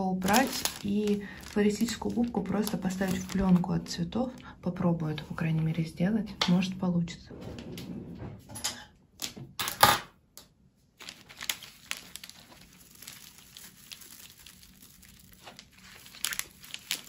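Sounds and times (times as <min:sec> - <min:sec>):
floral foam crinkling and crackling: 0:00.0 - 0:04.4, 0:11.0 - 0:17.0.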